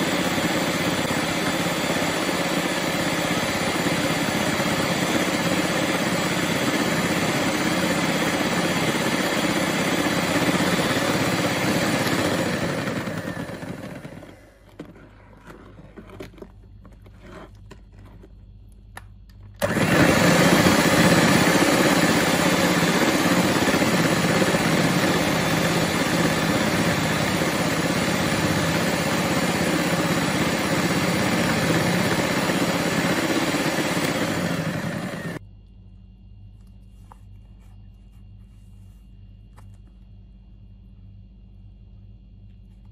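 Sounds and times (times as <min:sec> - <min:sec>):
electric hand mixer whisking: 0:00.0 - 0:15.0, 0:19.6 - 0:35.4.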